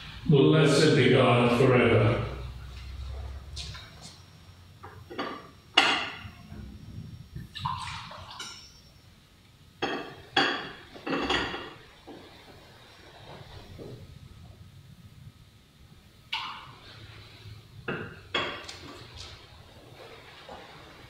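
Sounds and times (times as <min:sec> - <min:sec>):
glass vessels clinking: 0:04.9 - 0:06.5, 0:07.8 - 0:08.9, 0:09.8 - 0:11.9, 0:17.9 - 0:19.0
wine pouring: 0:07.4 - 0:08.8.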